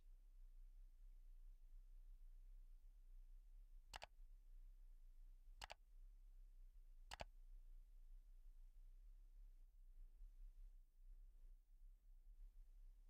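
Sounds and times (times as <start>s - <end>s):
mouse clicks: 3.9s - 4.1s, 5.6s - 5.8s, 7.1s - 7.3s.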